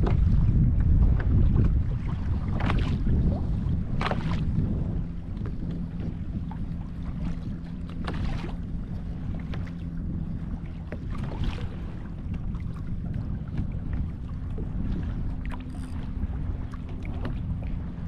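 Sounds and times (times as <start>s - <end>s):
water moving against hull: 0.0s - 18.0s
wind buffeting microphone: 0.0s - 18.0s
short knocks and splashes: 1.2s - 3.1s.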